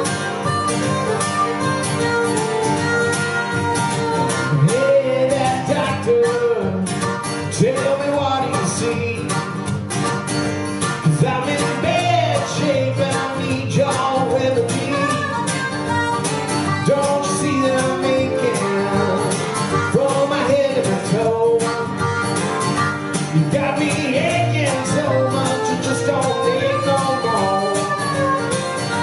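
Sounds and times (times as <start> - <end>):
acoustic guitar strumming: 0.0 - 29.0
harmonica melody: 0.0 - 29.0.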